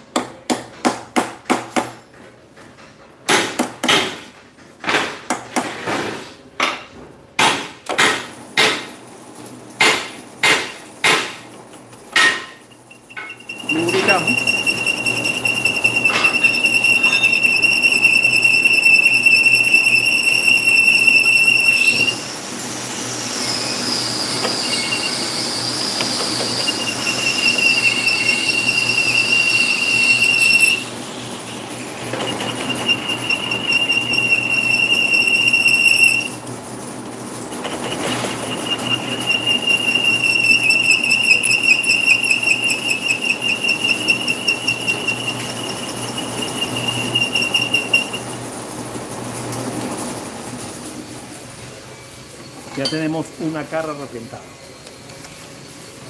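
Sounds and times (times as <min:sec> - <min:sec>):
lathe running: 0:12.3 - 0:49.5
lathe tool squealing on metal: 0:12.4 - 0:22.4, 0:23.2 - 0:36.4, 0:37.5 - 0:48.4.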